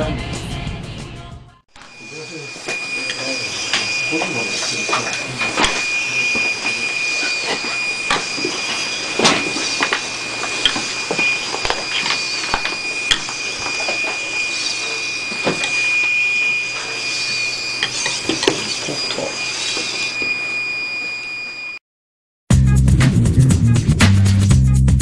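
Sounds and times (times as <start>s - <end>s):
servo motors whining: 1.8s - 21.7s.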